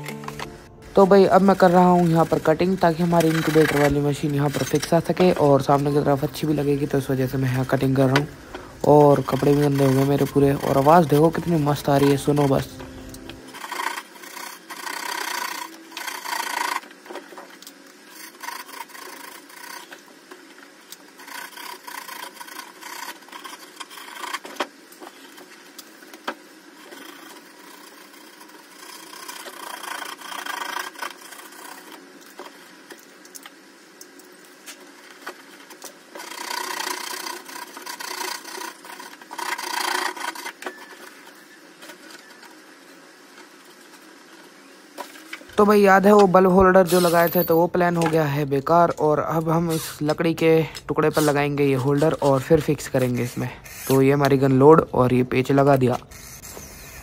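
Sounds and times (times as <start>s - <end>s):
blade sawing polystyrene: 8.9s - 12.8s, 13.5s - 16.9s, 18.0s - 20.1s, 21.1s - 24.4s, 26.7s - 32.2s, 51.1s - 54.2s.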